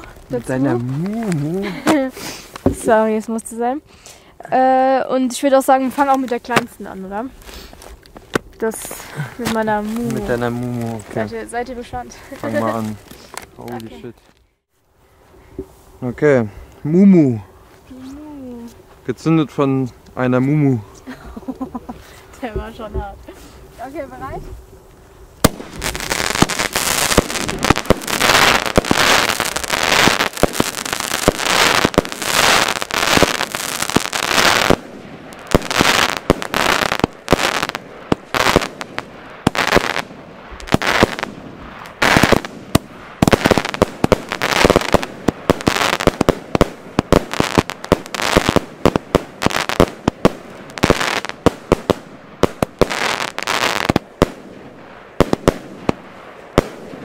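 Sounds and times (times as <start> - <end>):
fireworks barrage bangs and crackles: 0.0 - 3.4, 5.2 - 14.0, 25.4 - 57.0.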